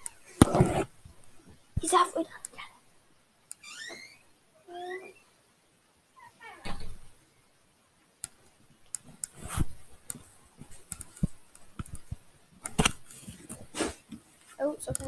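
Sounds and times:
laptop handling clicks and rustling: 0:09.0 - 0:13.9
laptop bumps: 0:10.6 - 0:13.9.

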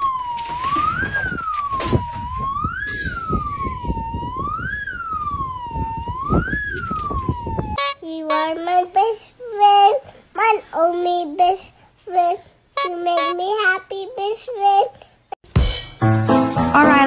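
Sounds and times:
wailing siren: 0:00.0 - 0:08.0.

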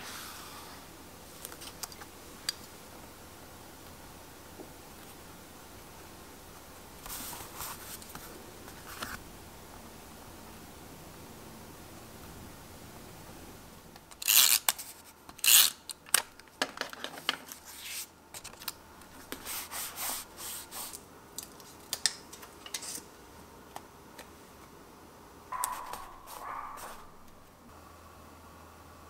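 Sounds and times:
paper swishing: 0:25.5 - 0:27.2
sticker rubbing: 0:25.5 - 0:27.4.

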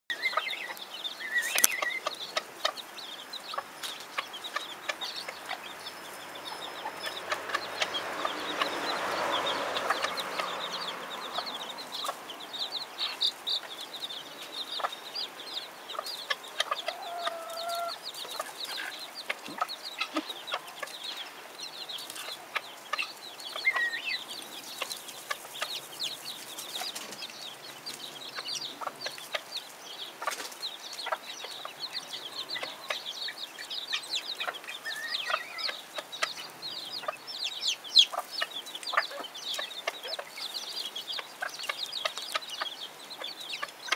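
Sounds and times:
mother hen calls: 0:00.1 - 0:20.9
baby chicks peeping: 0:00.1 - 0:43.9.

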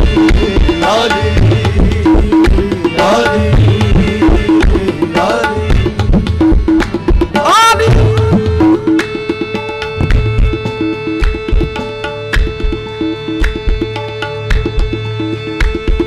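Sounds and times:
harmonium and ensemble: 0:00.0 - 0:16.0
tabla playing driving rhythm: 0:00.0 - 0:16.0
hand claps: 0:11.2 - 0:12.6, 0:13.4 - 0:16.0.

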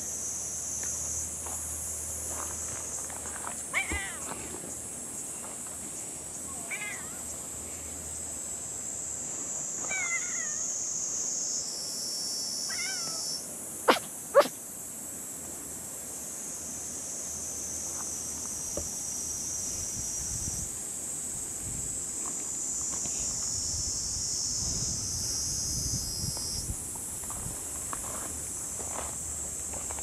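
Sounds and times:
high insect drone: 0:00.0 - 0:30.0
cat meowing: 0:03.8 - 0:04.2, 0:06.6 - 0:07.2, 0:09.9 - 0:10.6, 0:12.7 - 0:13.2.

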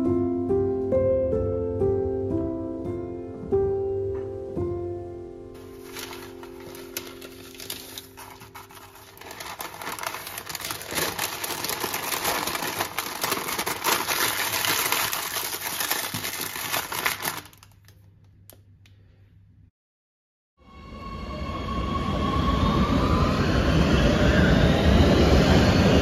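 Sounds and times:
baking paper crinkling: 0:05.6 - 0:18.1.

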